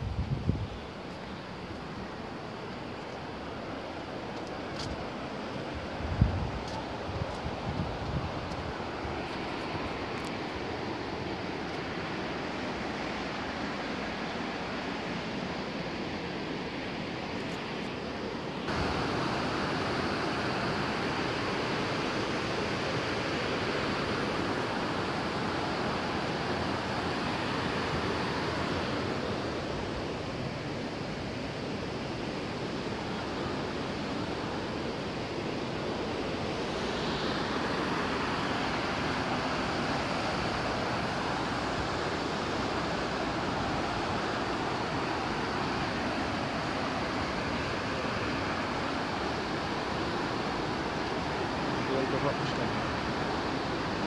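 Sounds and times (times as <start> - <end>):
waterfall rushing: 18.7 - 54.0.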